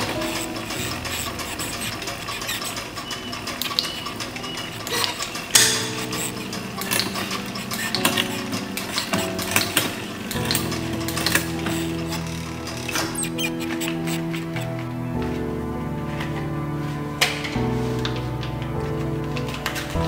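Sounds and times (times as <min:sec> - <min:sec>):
bike chain ticking and clicking: 0:00.0 - 0:14.7
background music: 0:00.0 - 0:20.0.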